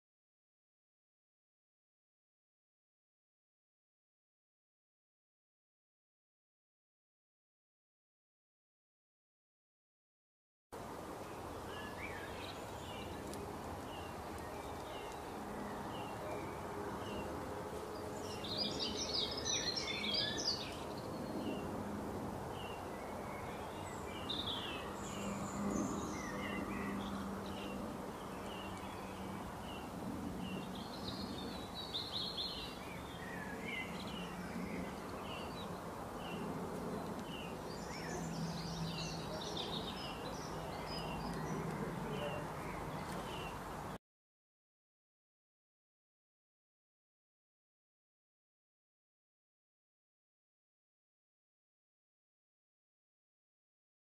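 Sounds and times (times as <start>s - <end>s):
outdoor background noise: 10.7s - 44.0s
high twittering birdsong: 11.1s - 21.8s, 22.4s - 44.0s
bird chirping: 18.0s - 21.7s, 22.6s - 43.6s.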